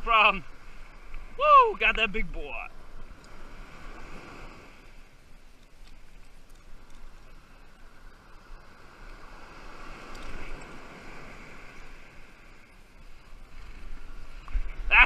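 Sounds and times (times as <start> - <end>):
surf washing: 0.0 - 15.0
wind on microphone: 8.3 - 15.0.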